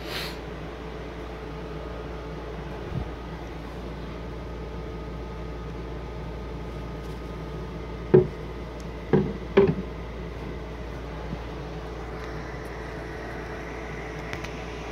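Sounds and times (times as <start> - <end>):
steady background hum: 0.0 - 14.9
short dull knocks: 8.1 - 8.4, 9.0 - 10.0.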